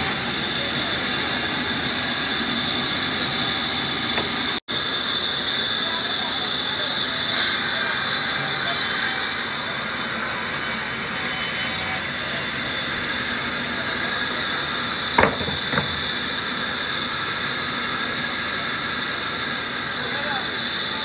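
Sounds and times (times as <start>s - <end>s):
band saw cutting wood: 0.0s - 5.8s, 8.8s - 16.7s
sharp knocks: 15.2s - 16.3s.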